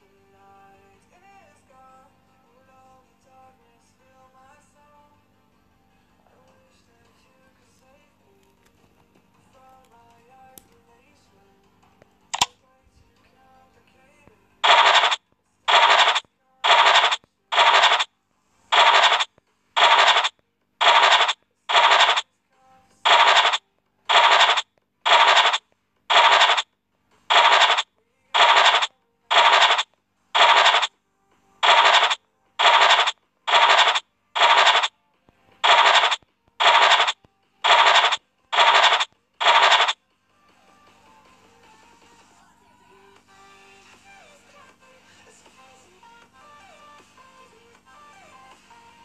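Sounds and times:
scratch card scraping sound effect: 14.6s - 18.1s, 18.7s - 22.2s, 23.1s - 26.6s, 27.3s - 30.9s, 31.6s - 34.9s, 35.6s - 40.0s.

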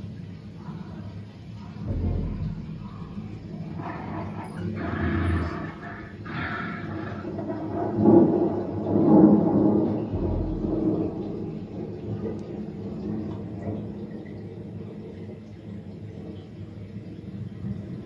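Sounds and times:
deep rumbling growl: 1.6s - 13.0s.

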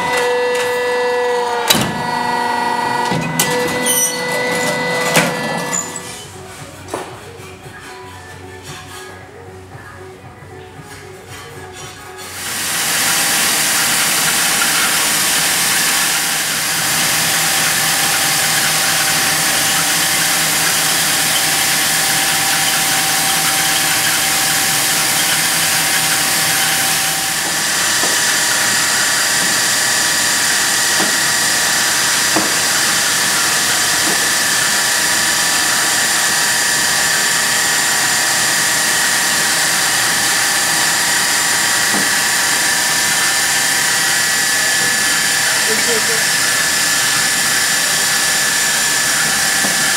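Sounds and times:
machine whine: 0.0s - 6.4s, 12.3s - 49.9s
shot blasting machine hissing: 12.4s - 49.9s.

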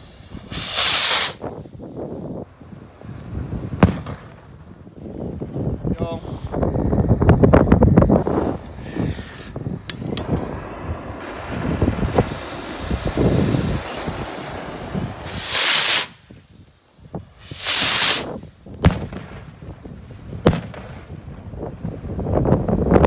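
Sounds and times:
rocket launch whoosh: 0.0s - 1.6s, 8.0s - 16.5s, 17.4s - 21.3s
wind noise on microphone: 0.0s - 23.0s
rocket heads bursting bangs: 3.7s - 4.6s, 17.5s - 19.7s, 20.3s - 21.3s.

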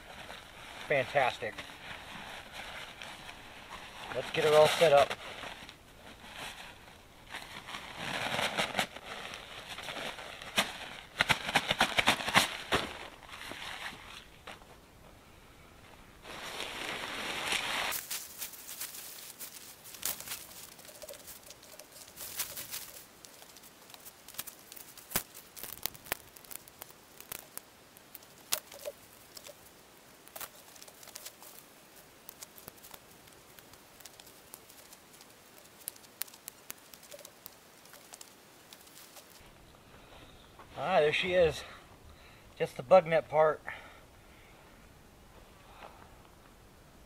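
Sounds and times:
tent fabric rustling: 0.0s - 14.6s, 16.2s - 26.6s
tent pole sections clicking: 17.4s - 39.4s.

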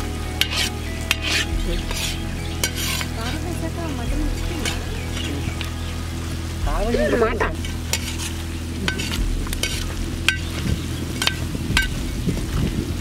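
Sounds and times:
curry sizzling in a pan: 0.0s - 13.0s
metal spoon scraping a pan: 0.4s - 3.5s, 4.6s - 5.6s, 7.6s - 12.0s.

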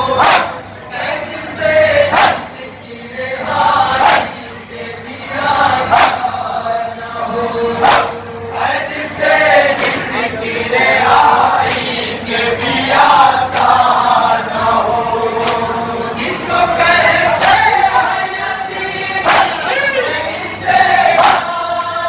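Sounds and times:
men chanting in chorus: 0.0s - 22.0s
hands slapping chests: 0.2s - 0.6s, 2.1s - 2.4s, 5.9s - 6.2s, 19.2s - 19.6s.

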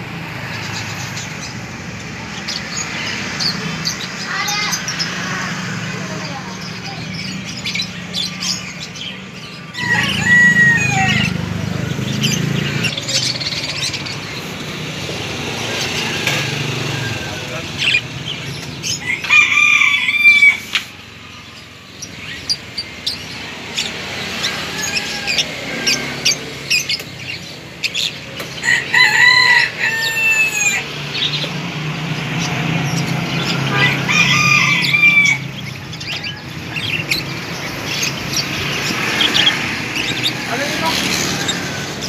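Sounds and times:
small birds chirping: 0.0s - 42.0s
rooster crowing: 9.7s - 11.5s, 15.7s - 17.8s, 18.8s - 20.8s, 24.3s - 26.4s, 28.6s - 31.0s, 33.6s - 35.7s.

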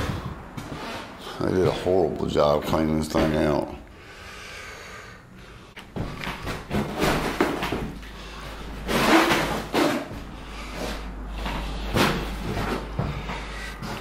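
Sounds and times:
knocks of objects handled: 5.8s - 8.2s
scraping rustles: 5.9s - 14.0s.

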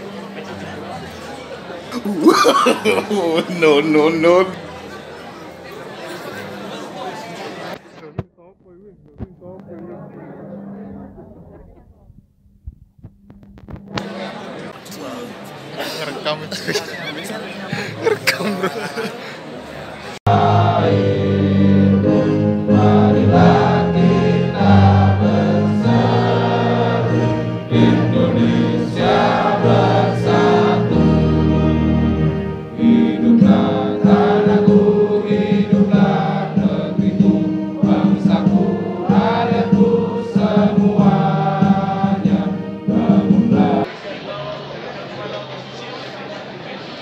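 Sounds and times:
choir singing held notes: 17.8s - 45.6s
sustained musical accompaniment: 20.3s - 43.9s.

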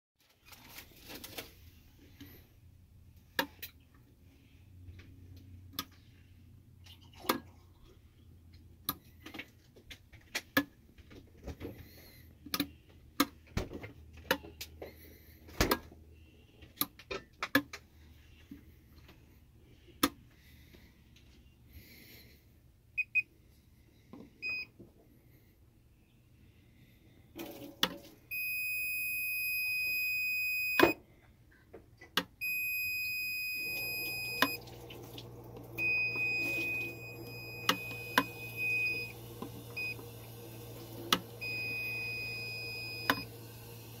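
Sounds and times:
voltage tester beeping: 28.3s - 31.0s, 32.4s - 34.6s, 35.8s - 40.0s, 41.1s - 43.3s.

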